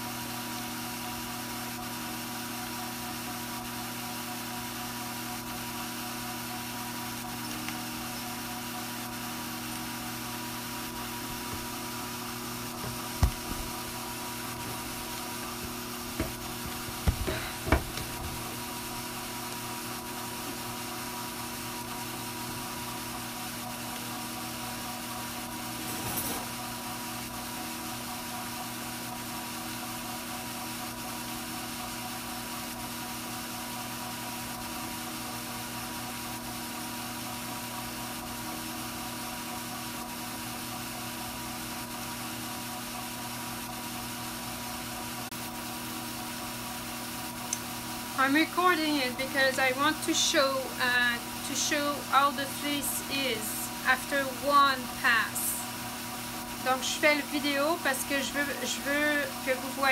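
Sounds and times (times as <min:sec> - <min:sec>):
drum carder motor humming: 0:00.0 - 0:59.9.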